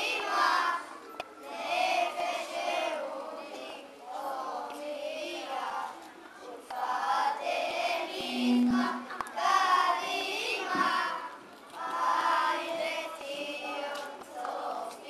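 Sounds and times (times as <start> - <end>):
children singing: 7.5 - 11.2.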